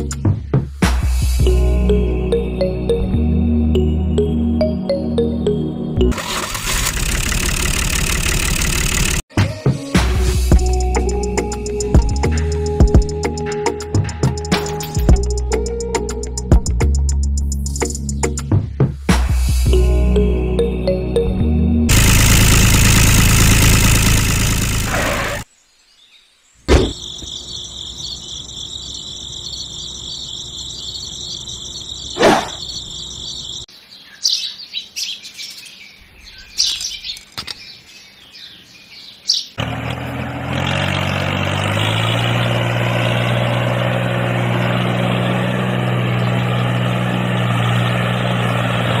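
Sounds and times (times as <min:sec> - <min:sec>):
music: 0:00.0 - 0:06.2, 0:09.3 - 0:21.9
toy tractor motor running: 0:06.1 - 0:09.3, 0:21.9 - 0:25.5
high whine with chirps: 0:26.7 - 0:33.7.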